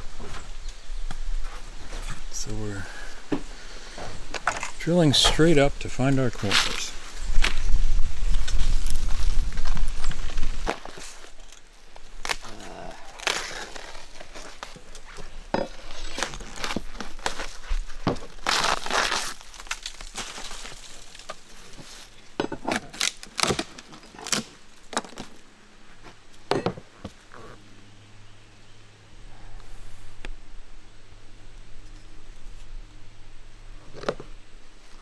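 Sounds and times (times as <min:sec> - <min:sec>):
roofing tearing and crackling: 0:08.2 - 0:25.4.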